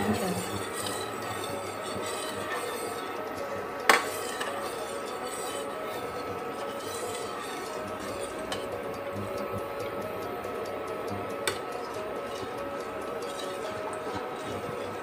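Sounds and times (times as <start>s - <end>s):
ladle stirring in a pot: 0.0s - 15.0s
ladle clinking against pot: 3.8s - 8.8s.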